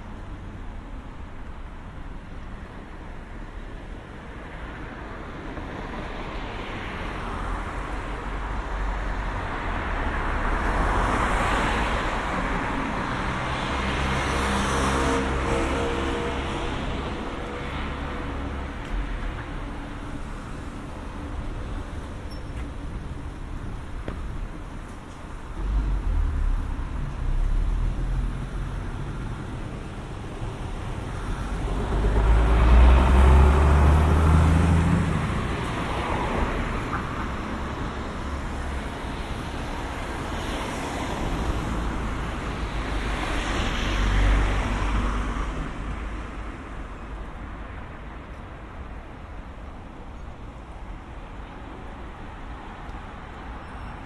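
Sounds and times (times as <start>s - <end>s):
cars driving past: 5.6s - 48.0s.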